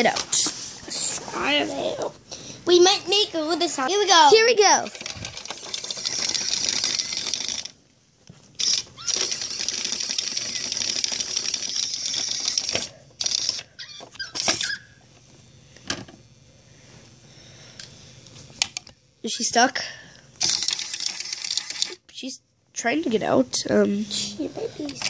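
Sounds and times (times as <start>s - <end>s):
toy motor whirring and rattling: 3.8s - 7.8s, 8.6s - 15.0s, 20.4s - 22.0s, 24.5s - 25.0s.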